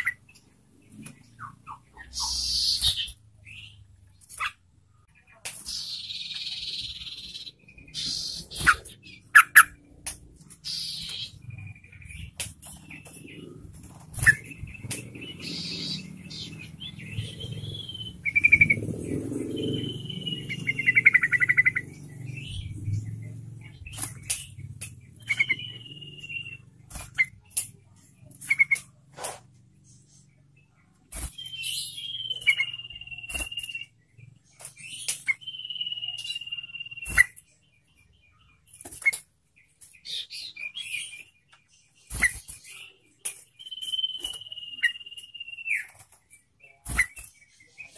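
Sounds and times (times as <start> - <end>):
bird whistled calls: 1.7 - 3.2, 14.2 - 21.8, 25.2 - 26.6, 31.3 - 34.0, 34.8 - 37.4, 43.6 - 45.9.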